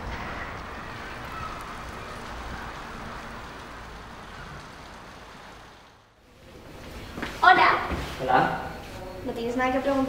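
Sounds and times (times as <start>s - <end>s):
low rumble of traffic: 0.0s - 10.0s.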